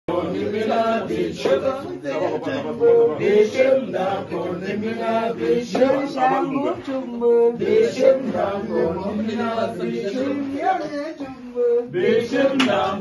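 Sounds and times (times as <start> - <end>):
men singing a chant: 0.1 - 13.0.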